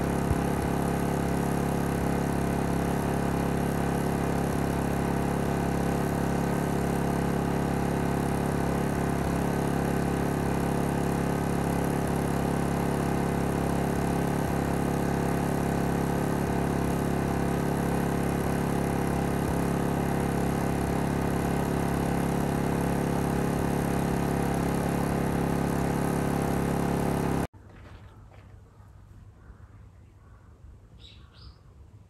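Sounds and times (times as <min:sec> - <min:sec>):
generator engine humming: 0:00.0 - 0:27.5.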